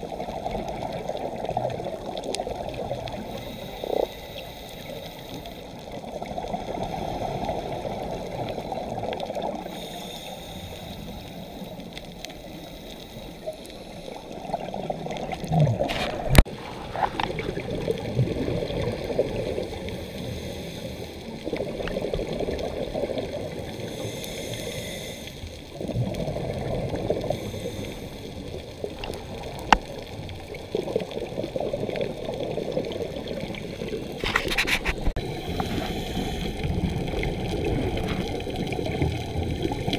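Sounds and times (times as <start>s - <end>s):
breath bubbling underwater: 14.2s - 20.1s, 25.7s - 27.7s, 28.5s - 39.9s.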